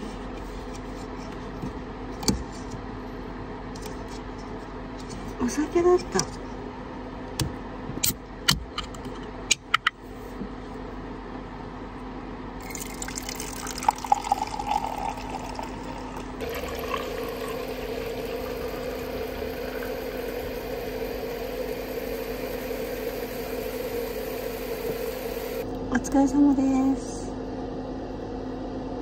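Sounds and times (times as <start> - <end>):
drink pouring into a cup: 12.6 - 25.6
steady hiss: 17.2 - 25.6.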